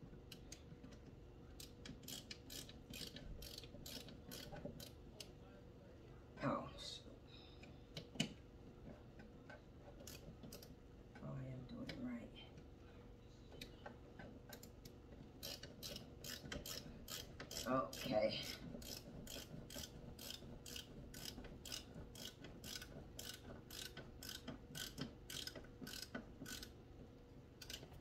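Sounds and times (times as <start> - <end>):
ratcheting screwdriver clicking: 1.6 - 5.0, 10.0 - 10.7, 15.4 - 26.8, 27.6 - 28.0.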